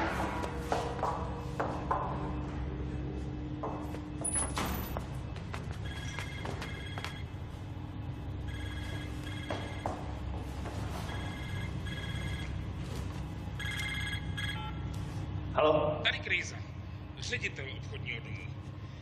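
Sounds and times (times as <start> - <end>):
steady low hum: 0.0 - 19.0
mobile phone ringing: 5.8 - 7.4, 8.4 - 10.0, 11.0 - 12.8, 13.6 - 14.8.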